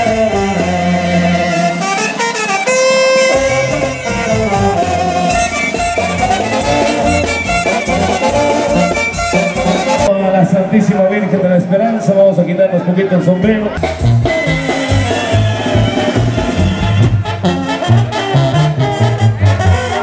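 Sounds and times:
band music: 0:00.0 - 0:20.0.

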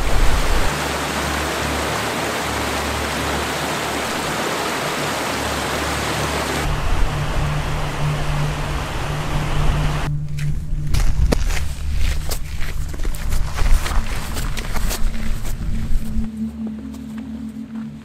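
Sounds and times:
stream rushing over rocks: 0:00.0 - 0:10.1.

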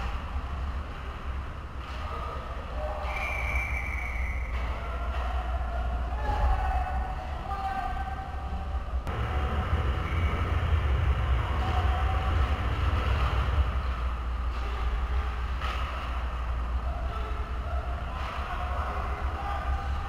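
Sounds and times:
low rumble: 0:08.4 - 0:17.0
clatter of hockey play: 0:15.5 - 0:16.3.

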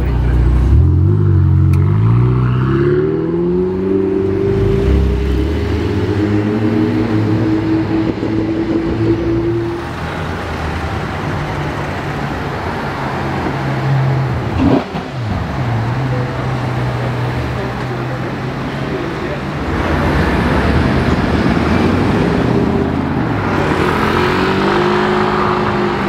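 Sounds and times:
road noise: 0:00.0 - 0:26.0
sports car engine at low speed: 0:00.0 - 0:26.0
sports car engine pulling away: 0:21.7 - 0:26.0.

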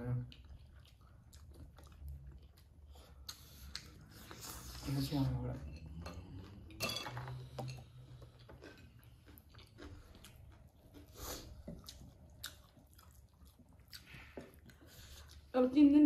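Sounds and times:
chewing and biting: 0:00.3 - 0:04.8, 0:07.8 - 0:15.5.

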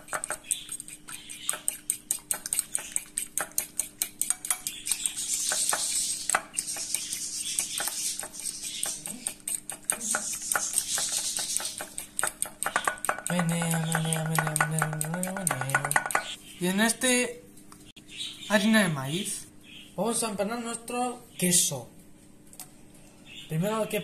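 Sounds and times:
fork beating eggs in bowl: 0:00.0 - 0:16.4.

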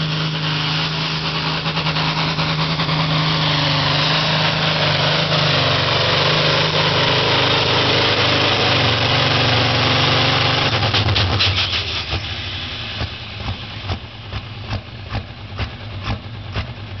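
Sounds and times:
tractor diesel engine under load: 0:00.0 - 0:17.0
lumpy engine idle: 0:11.5 - 0:17.0.

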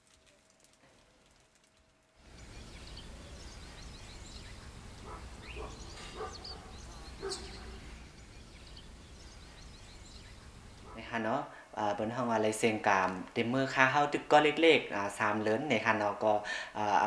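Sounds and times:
small birds chirping: 0:02.2 - 0:11.5
low outdoor rumble: 0:02.2 - 0:13.8.

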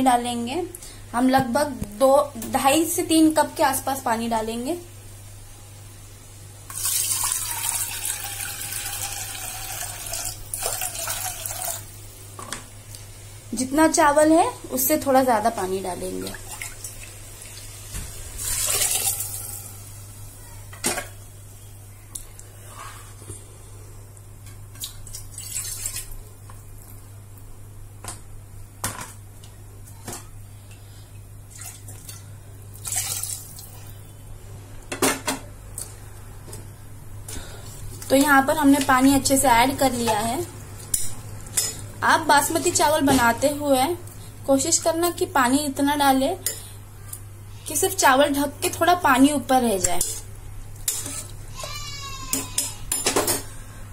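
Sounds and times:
water pouring into a bowl: 0:06.7 - 0:11.9, 0:18.4 - 0:19.7, 0:25.1 - 0:26.2, 0:32.8 - 0:33.7.

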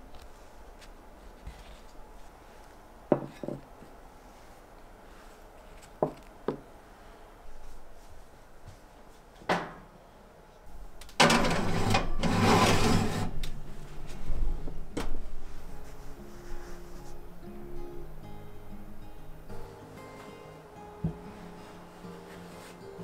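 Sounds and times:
ceramic dish scraping on oven rack: 0:11.2 - 0:13.5.

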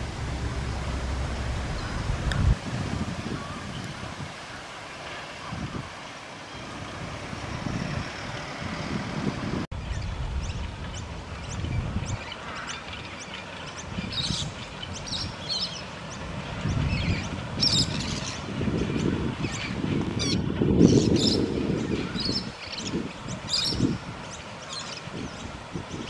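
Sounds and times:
small birds chirping: 0:00.0 - 0:04.7
wind rumble on microphone: 0:00.0 - 0:26.0.

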